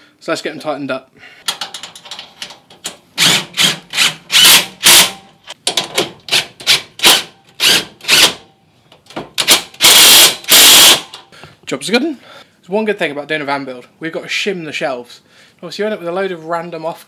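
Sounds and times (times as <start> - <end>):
cordless drill driving bolts: 3.2 - 5.2, 6.3 - 8.4, 9.4 - 11.2.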